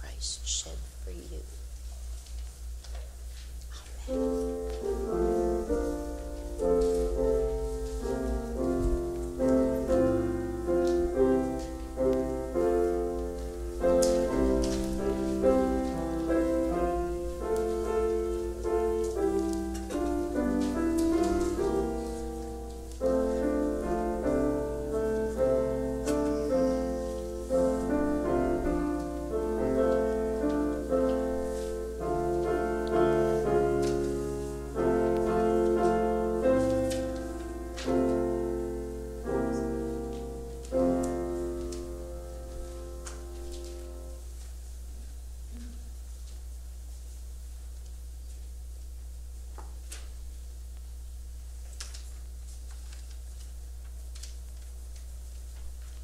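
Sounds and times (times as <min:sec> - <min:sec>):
steady low hum: 0:00.0 - 0:56.0
piano-like keyboard music: 0:04.0 - 0:44.3.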